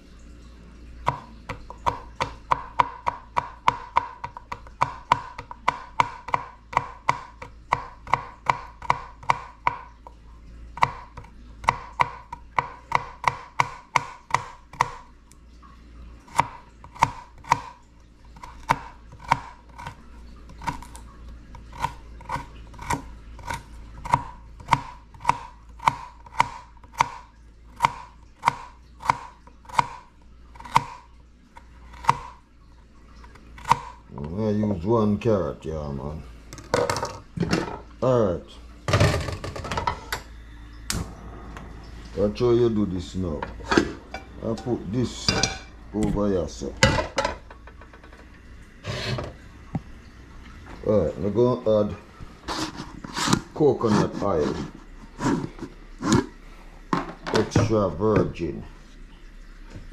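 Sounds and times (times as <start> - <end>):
knife chopping carrots on board: 1.1 - 9.8, 10.8 - 15.0, 16.3 - 17.8, 21.8 - 27.2, 27.8 - 30.0.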